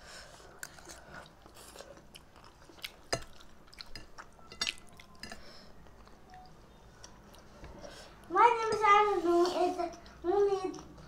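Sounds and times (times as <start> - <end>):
wet chewing and mouth noises: 0.5 - 7.5.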